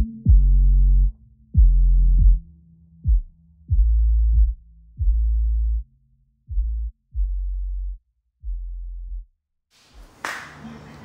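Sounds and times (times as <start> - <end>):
bass-heavy electronic music: 0.0 - 5.9, 6.5 - 9.3.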